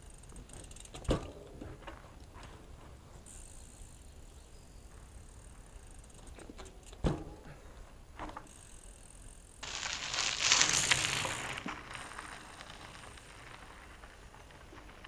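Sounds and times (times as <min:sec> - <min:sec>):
bike tyres crunching over gravel: 0:07.5 - 0:15.0.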